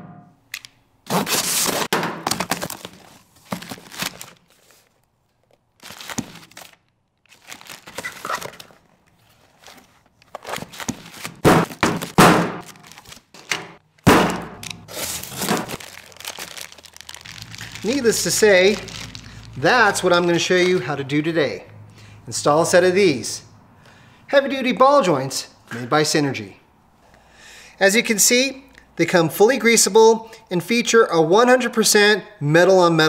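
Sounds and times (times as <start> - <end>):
knife slicing packing tape: 1.0 - 1.9, 14.3 - 16.5
cardboard and paper rustling: 1.1 - 13.6, 14.7 - 20.8
boxes knocking on workbench: 11.4 - 12.6.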